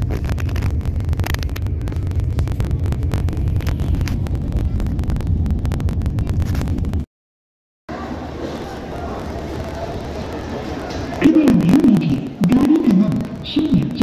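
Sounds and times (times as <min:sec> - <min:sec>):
train rumbling: 0:00.0 - 0:07.0, 0:07.9 - 0:14.0
wind buffeting microphone: 0:00.0 - 0:07.0.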